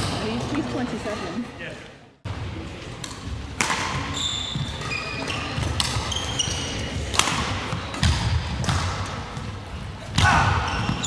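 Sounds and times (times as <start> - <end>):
racket striking shuttlecock: 3.0 - 4.2, 7.1 - 9.5
shoes squeaking: 4.0 - 7.0.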